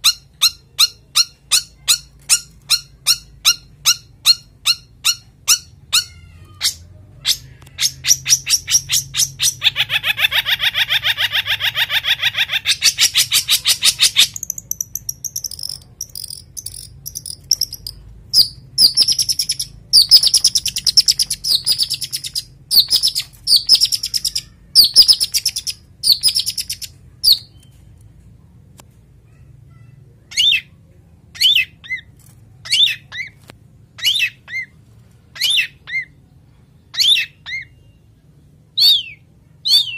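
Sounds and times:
bird high-pitched chattering: 0:00.0 - 0:27.7, 0:29.8 - 0:33.4.

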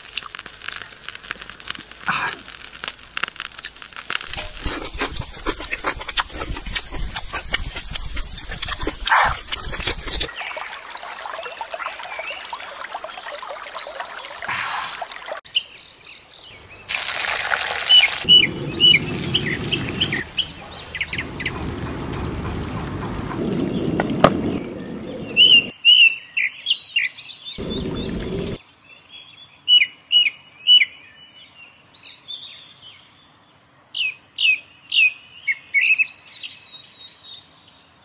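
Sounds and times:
chewing and slurping: 0:00.0 - 0:10.3, 0:16.9 - 0:25.7
birds chirping: 0:04.3 - 0:10.3, 0:17.8 - 0:25.7, 0:27.6 - 0:28.6
water trickling: 0:16.6 - 0:25.7, 0:27.6 - 0:28.6.

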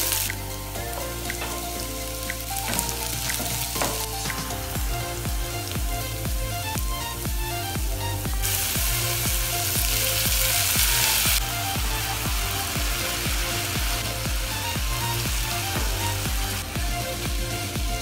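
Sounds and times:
background music with beat: 0:00.0 - 0:18.0
onion and garlic sizzling: 0:00.0 - 0:18.0.

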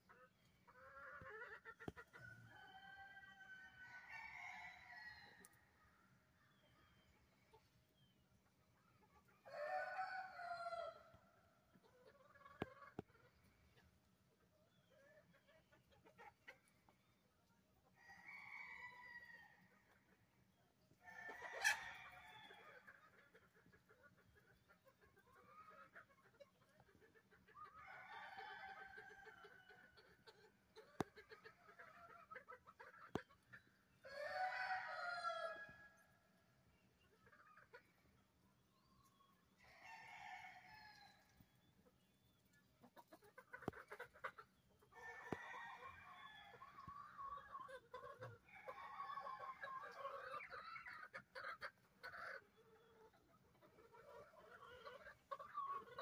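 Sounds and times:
hens clucking: 0:00.0 - 0:04.7, 0:06.7 - 0:17.9, 0:19.4 - 0:38.4, 0:39.0 - 0:56.0
roosters crowing: 0:09.4 - 0:11.1, 0:34.0 - 0:35.9, 0:45.0 - 0:46.9.

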